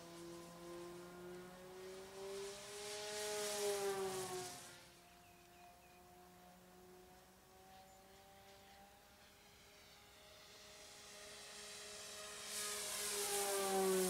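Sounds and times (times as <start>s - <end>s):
model plane motor whine: 0.0s - 14.0s
air hiss: 11.5s - 14.0s.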